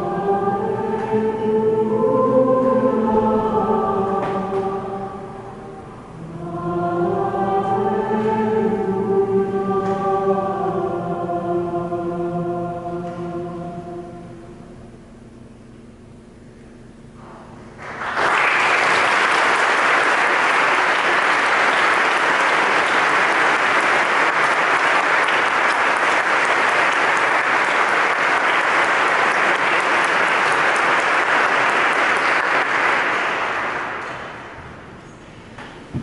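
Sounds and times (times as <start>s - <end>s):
audience applauding: 17.8s - 34.7s.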